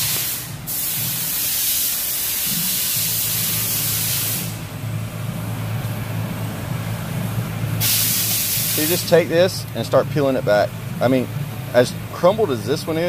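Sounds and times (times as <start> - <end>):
steady hiss: 0.0 - 4.8, 7.7 - 9.4
low hum: 4.5 - 7.8.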